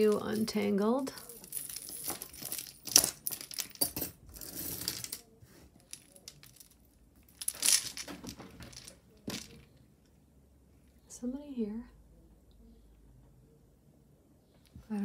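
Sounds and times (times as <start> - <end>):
beads and chain clicking: 0.0 - 5.2, 5.8 - 9.6.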